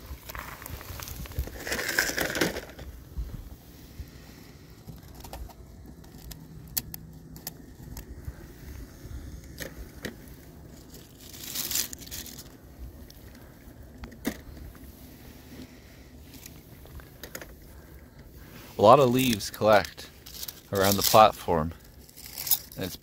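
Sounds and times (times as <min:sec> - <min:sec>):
dry leaves rustling: 0:00.0 - 0:02.8, 0:10.6 - 0:12.7, 0:19.2 - 0:23.0.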